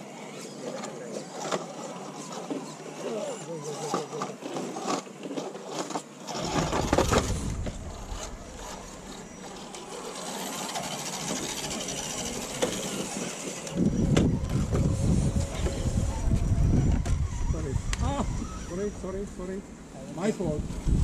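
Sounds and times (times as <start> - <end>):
electric motor and gears whirring: 0.0 - 21.0
low rumble: 6.8 - 9.7.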